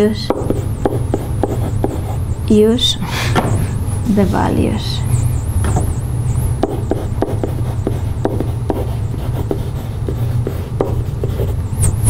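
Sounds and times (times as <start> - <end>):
marker squeaking on whiteboard: 0.0 - 2.3, 3.5 - 12.0
steady low hum: 0.0 - 12.0
marker tapping on whiteboard: 0.2 - 2.0, 6.6 - 9.6, 10.4 - 11.5.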